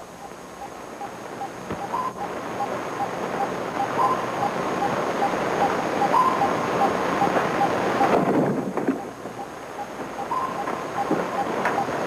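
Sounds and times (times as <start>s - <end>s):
short electronic blips: 0.2s - 8.2s
higher longer beep: 0.6s - 8.1s, 9.0s - 11.9s
rushing noise: 0.9s - 12.0s.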